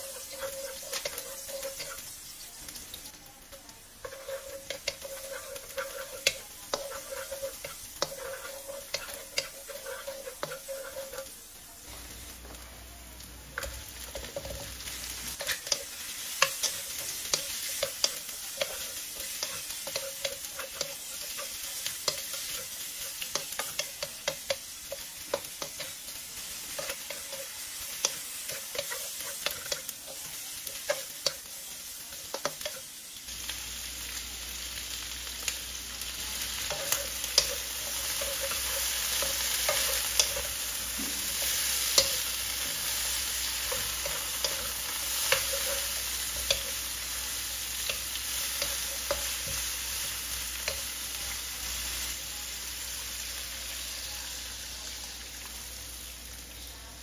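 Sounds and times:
food sizzling in oil: 0.0 - 57.0
spatula knocking and scraping pan: 4.0 - 11.3.

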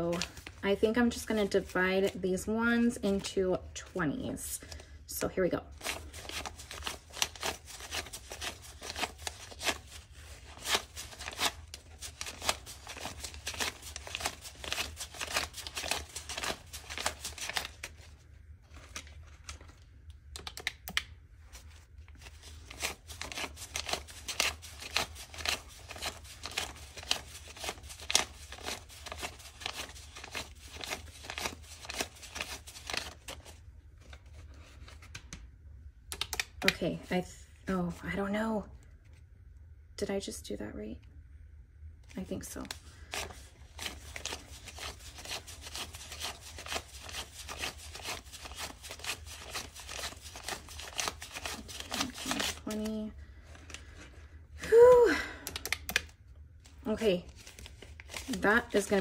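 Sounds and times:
banknotes rustling and snapping: 5.7 - 18.1, 18.7 - 35.4, 36.1 - 36.8, 42.6 - 54.2, 55.3 - 56.2, 57.3 - 59.0.

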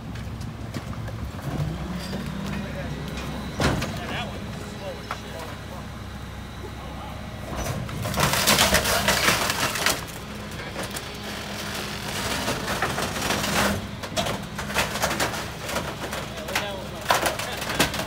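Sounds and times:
garbage truck running: 0.0 - 18.0
debris crackling and crunching: 7.6 - 18.0.

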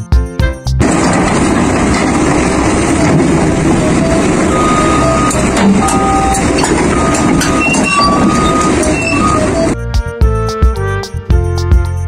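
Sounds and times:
excavator engine running: 0.8 - 9.8
metal clanks: 0.8 - 9.8
short high-pitched squeaks: 4.0 - 9.8.

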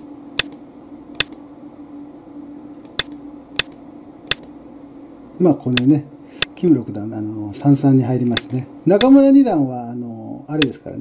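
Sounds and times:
faint steady hum: 0.0 - 11.0
sharp single clicks: 0.4 - 0.6, 1.2 - 1.4, 2.8 - 4.5, 8.3 - 9.2.

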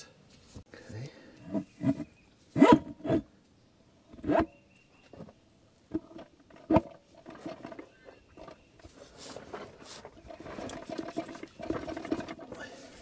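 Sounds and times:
light metal scraping and clattering: 5.9 - 13.0.

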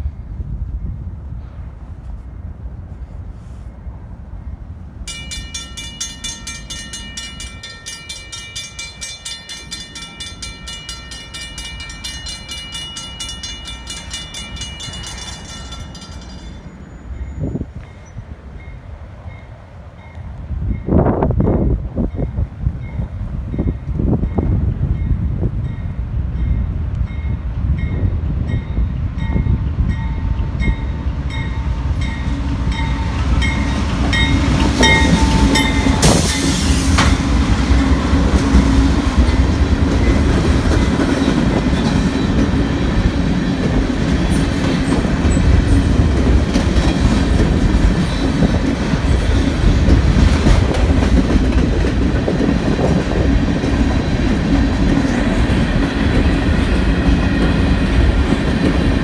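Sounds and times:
freight train passing: 0.0 - 59.0
crossing bell ringing: 5.1 - 20.2, 25.6 - 36.9.

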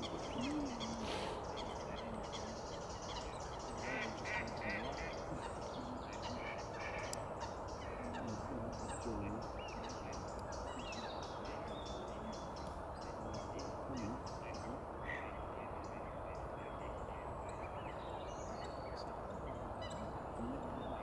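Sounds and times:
geese honking: 0.0 - 10.1
higher bird calls: 0.0 - 21.0
outdoor background rush: 0.0 - 21.0.

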